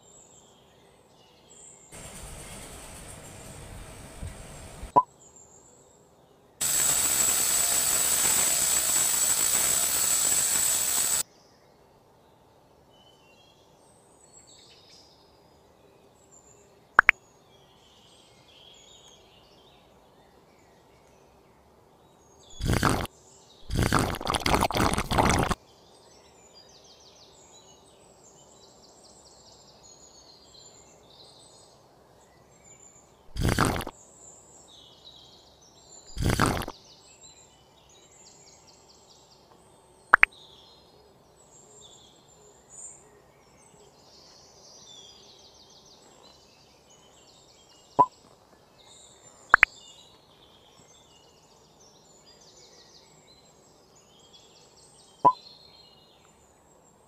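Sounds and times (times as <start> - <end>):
faint bird chirps: 13.0 - 57.0
sharp clicks: 33.3 - 33.9, 36.2 - 36.7.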